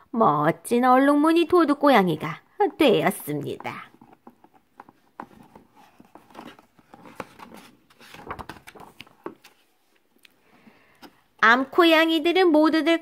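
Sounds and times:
book page turning: 4.0s - 10.1s.

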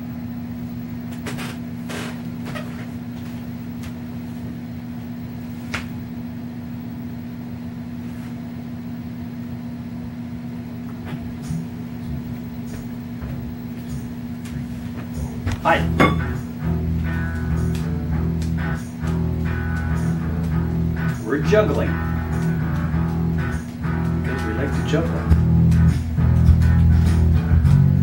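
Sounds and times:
low hum: 0.0s - 28.0s.

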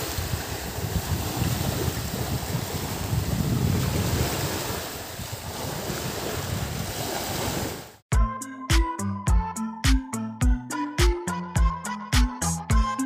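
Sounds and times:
wind buffeting microphone: 0.0s - 7.9s
music with strong beat: 8.1s - 13.0s.

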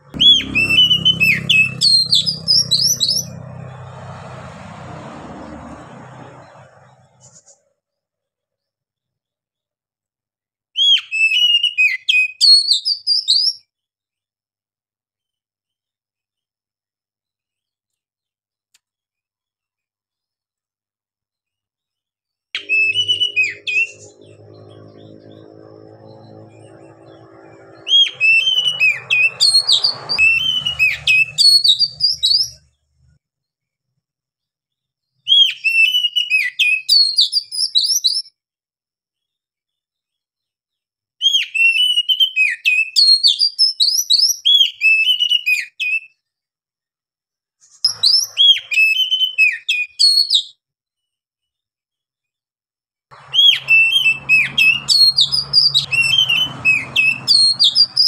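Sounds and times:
bird singing varied whistles: 10.8s - 13.6s, 28.0s - 32.6s, 35.3s - 38.3s, 41.2s - 46.2s, 47.9s - 50.5s, 53.3s - 58.0s.

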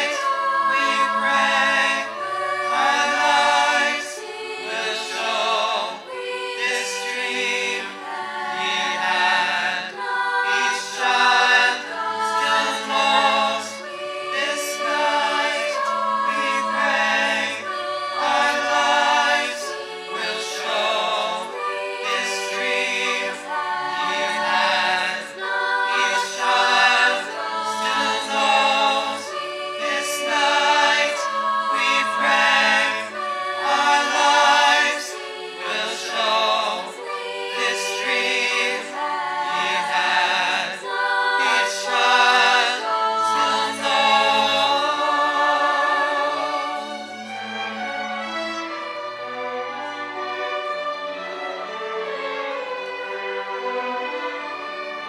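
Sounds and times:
choir singing: 0.0s - 55.0s
string orchestra: 0.0s - 55.0s.

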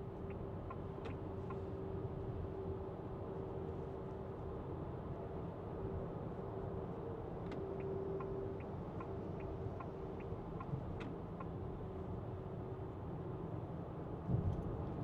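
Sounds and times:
road and tyre rumble: 0.0s - 15.0s
turn signal ticking: 7.8s - 11.6s.

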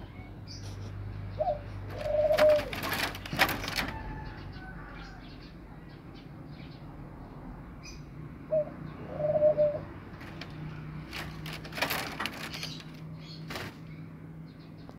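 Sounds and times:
bird cooing: 1.3s - 4.6s, 8.5s - 12.9s
rustling: 1.9s - 4.1s, 10.1s - 13.9s.

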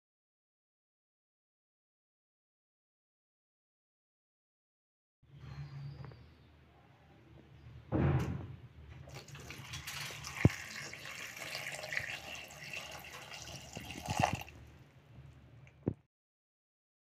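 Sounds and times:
short thump: 7.9s - 8.6s
water pouring into a bowl: 9.1s - 14.7s.

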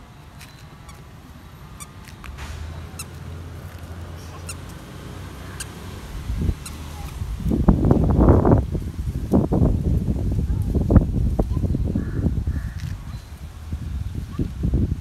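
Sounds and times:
squeaky shoes squeaking: 0.3s - 5.8s, 6.6s - 7.2s.

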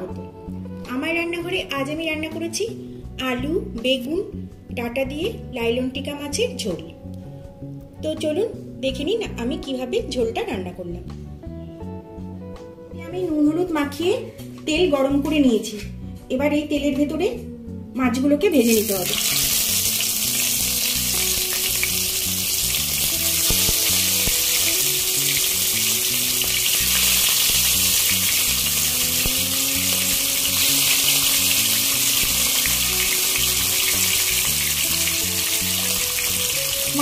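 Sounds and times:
fish sizzling in hot oil: 18.7s - 37.0s.

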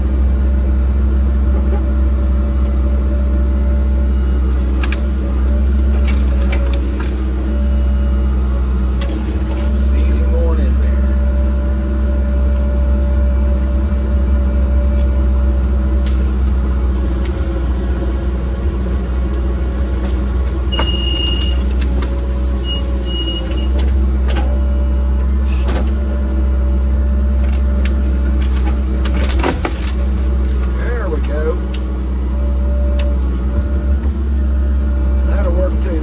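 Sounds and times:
large engine running: 0.0s - 36.0s
cracks and knocks: 27.4s - 30.8s.

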